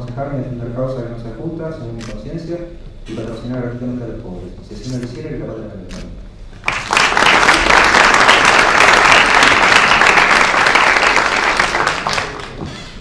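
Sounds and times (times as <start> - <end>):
audience applauding: 6.6 - 12.7.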